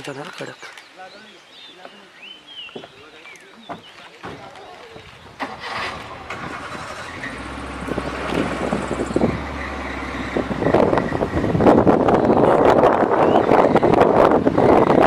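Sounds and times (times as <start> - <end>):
wind on microphone: 5.0 - 15.0
vehicle engine hum: 5.1 - 15.0.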